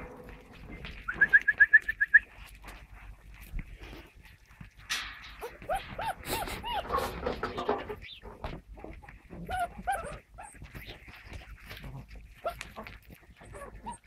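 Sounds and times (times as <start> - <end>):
puppies yelping and whimpering: 5.4 - 7.4, 9.2 - 14.0.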